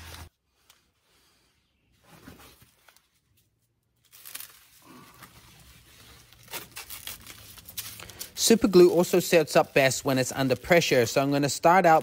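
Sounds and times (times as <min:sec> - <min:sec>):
plastic stretch wrap crinkling: 0:02.5 - 0:12.0.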